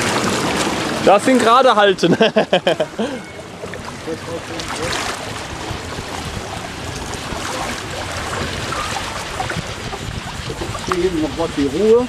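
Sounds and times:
water rushing along flume: 0:00.0 - 0:12.0.

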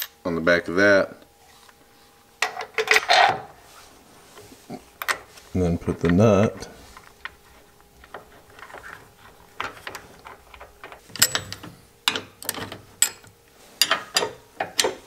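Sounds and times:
tools handled against metal: 0:06.9 - 0:15.0
nut threaded onto bolt: 0:09.6 - 0:15.0.

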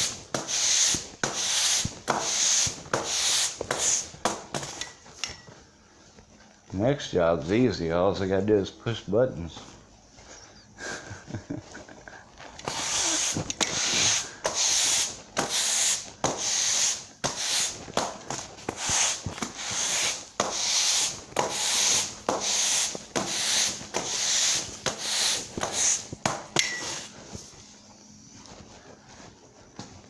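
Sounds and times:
broom sweeping concrete: 0:00.0 - 0:05.1, 0:12.5 - 0:29.3.

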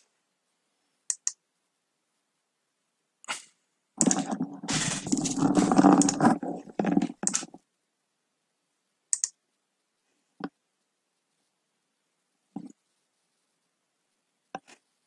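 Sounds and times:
knocking and clicking at a desk: 0:04.0 - 0:07.6.

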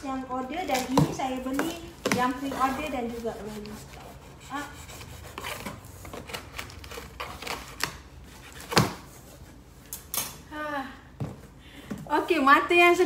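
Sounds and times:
cardboard box rustling and scraping: 0:02.2 - 0:04.0.

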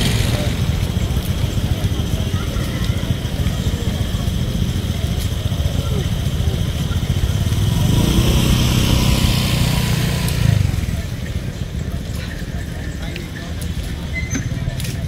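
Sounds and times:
vehicle engine passing by: 0:06.1 - 0:11.3.

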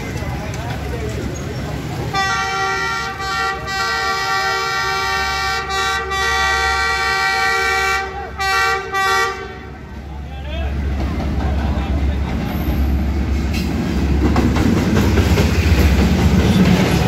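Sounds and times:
locomotive air horn: 0:02.1 - 0:09.8.

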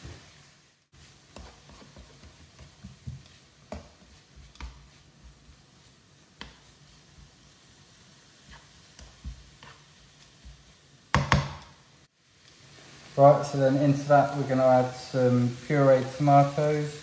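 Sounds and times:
faint frying sizzle: 0:00.0 - 0:17.0
spatula scraping and tapping wok: 0:01.0 - 0:12.7.

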